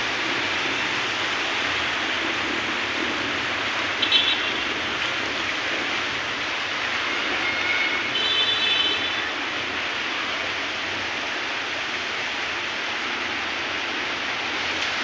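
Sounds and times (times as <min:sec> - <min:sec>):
heavy rain falling: 0:00.0 - 0:15.0.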